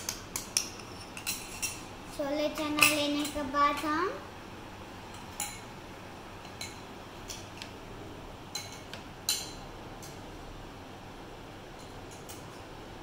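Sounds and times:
metal spoon clinking against bowls: 0:00.0 - 0:01.9, 0:02.8 - 0:03.4, 0:05.1 - 0:05.7, 0:06.4 - 0:07.7, 0:08.5 - 0:10.2, 0:11.8 - 0:12.6
low room hiss: 0:00.0 - 0:13.0.

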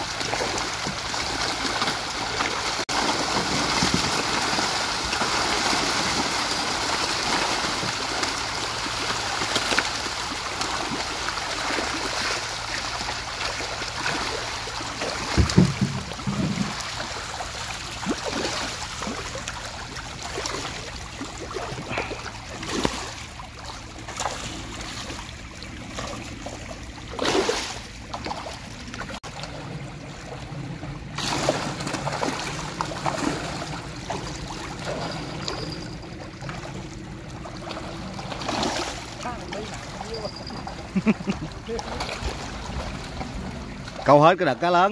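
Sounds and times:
running water rushing: 0:00.0 - 0:44.9
dull double thump: 0:15.3 - 0:16.8.

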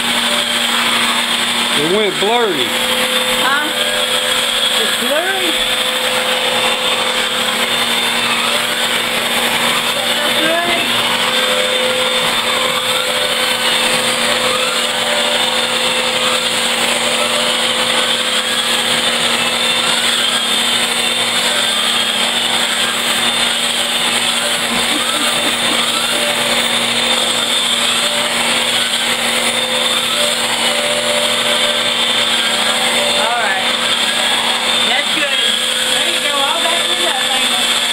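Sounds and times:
vacuum cleaner running: 0:00.0 - 0:37.9.

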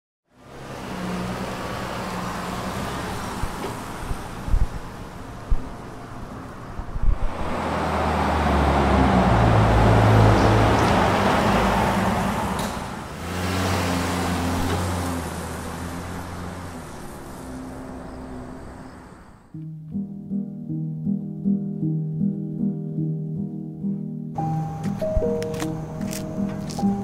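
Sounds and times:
car passing: 0:00.3 - 0:19.6.

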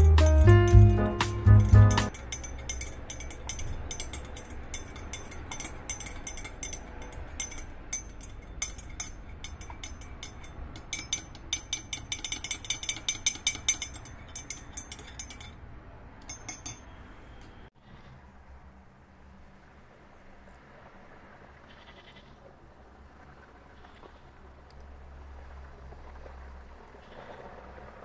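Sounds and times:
tableware clinking: 0:00.7 - 0:15.6, 0:16.2 - 0:17.0.

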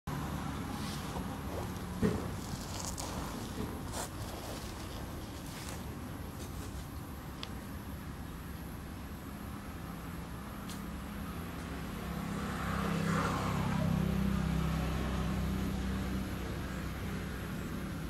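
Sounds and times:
vehicle engine passing by: 0:00.1 - 0:05.8, 0:09.8 - 0:18.0.

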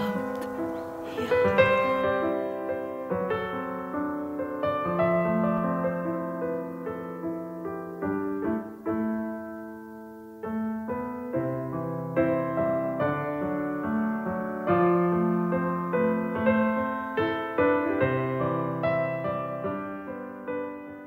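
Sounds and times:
calm piano music: 0:00.0 - 0:21.0.

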